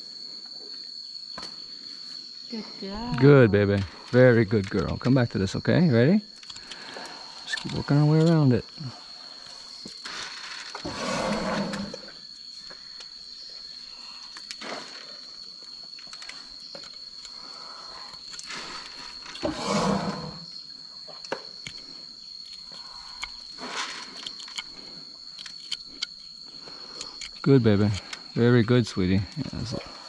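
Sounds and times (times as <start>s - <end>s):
elephant rumbling: 10.4s - 12.2s, 18.7s - 20.5s.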